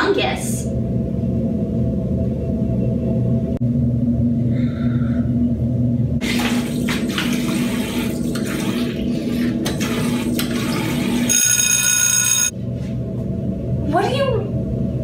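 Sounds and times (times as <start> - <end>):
water running from tap: 6.2 - 11.3
water splashing: 6.2 - 11.3
phone ringing: 11.3 - 12.5.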